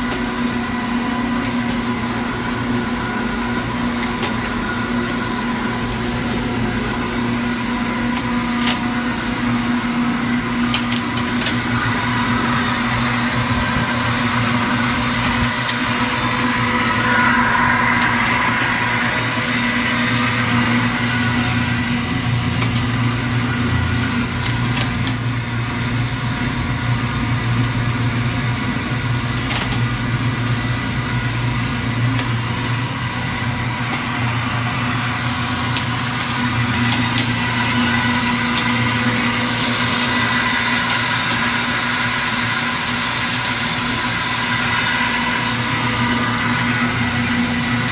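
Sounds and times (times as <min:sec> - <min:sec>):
electric motor hum and whine: 0:00.0 - 0:47.9.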